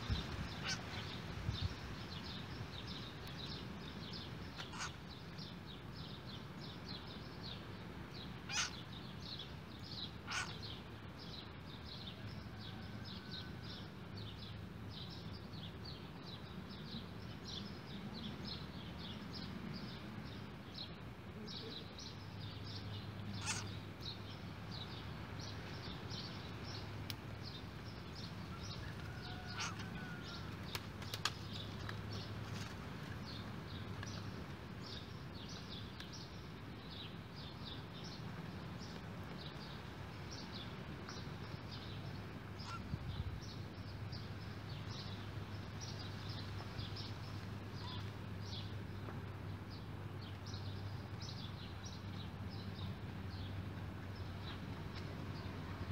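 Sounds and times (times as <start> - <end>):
sharp animal calls: 4.6 - 5.0, 8.5 - 8.8, 10.3 - 10.6, 23.4 - 23.7, 29.3 - 29.9
small animals chirping: 4.6 - 5.0, 8.5 - 8.8, 10.3 - 10.6, 23.4 - 23.7.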